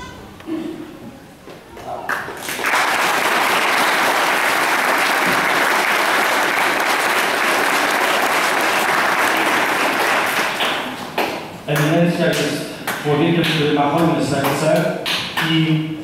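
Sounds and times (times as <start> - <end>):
congregation applauding: 2.0 - 14.6.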